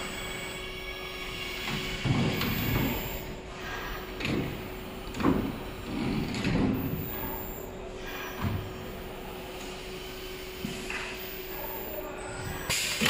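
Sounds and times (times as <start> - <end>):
steady machine hum: 0.0 - 13.0.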